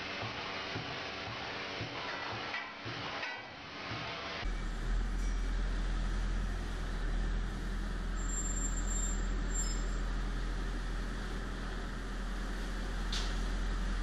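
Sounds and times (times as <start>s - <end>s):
straw blower engine humming: 4.5s - 8.2s, 9.2s - 14.0s.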